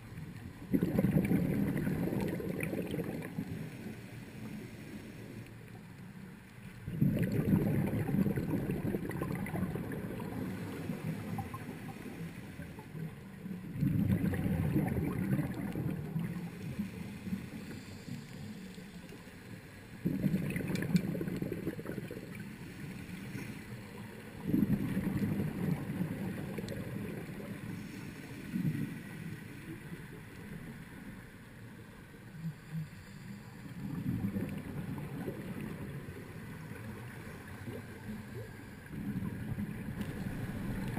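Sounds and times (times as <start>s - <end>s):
underwater regulator exhaust bubbles: 0.6s - 3.8s, 6.8s - 12.2s, 12.8s - 18.3s, 20.0s - 22.6s, 24.4s - 27.9s, 33.8s - 37.0s, 38.8s - 40.9s.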